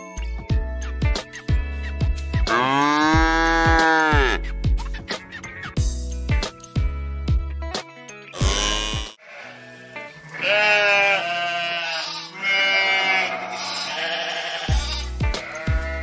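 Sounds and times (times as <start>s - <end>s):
background music with a beat: 0.0s - 9.2s, 14.7s - 16.0s
sheep bleating: 2.5s - 4.4s, 8.4s - 16.0s.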